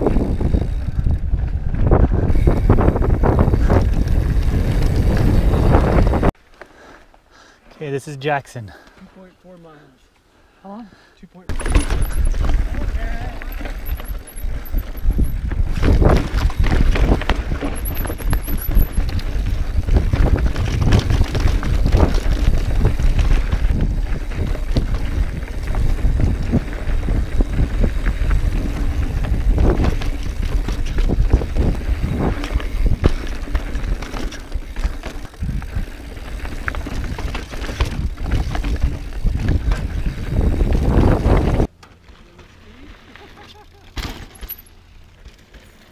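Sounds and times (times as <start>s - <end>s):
bike knocking and rattling over rocks: 0.0s - 6.3s, 11.5s - 45.9s
wind buffeting microphone: 0.0s - 6.4s, 11.6s - 41.7s.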